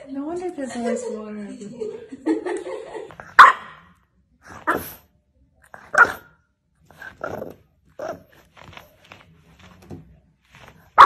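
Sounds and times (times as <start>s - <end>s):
dog barking: 3.2s - 3.9s, 4.5s - 5.0s, 5.8s - 6.4s.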